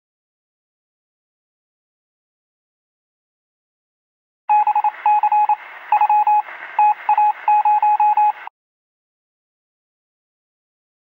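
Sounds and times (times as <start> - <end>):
short radio beeps: 4.5 - 8.5
radio hiss: 4.7 - 8.5.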